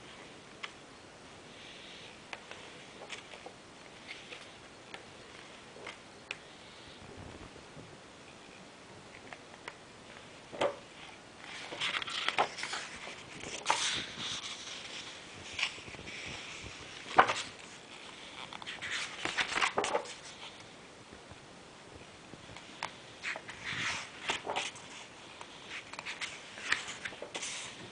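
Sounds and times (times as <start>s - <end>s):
book pages turning: 2.1s - 6.5s, 9.2s - 20.7s, 22.6s - 27.9s
pages flicking: 18.5s - 20.2s, 22.8s - 27.8s.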